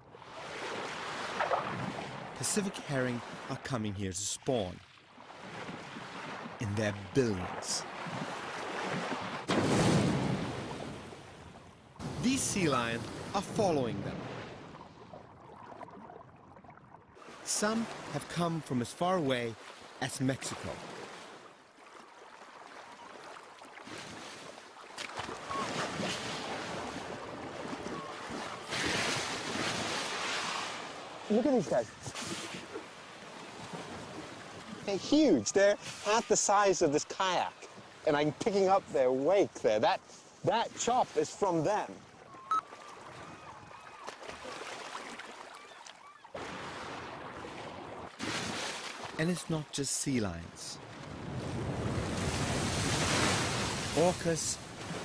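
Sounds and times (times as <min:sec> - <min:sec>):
water lapping and splashing: 0:00.0 - 0:49.3, 0:50.8 - 0:55.0
faint gliding whistles: 0:25.4 - 0:25.8, 0:42.3 - 0:44.1.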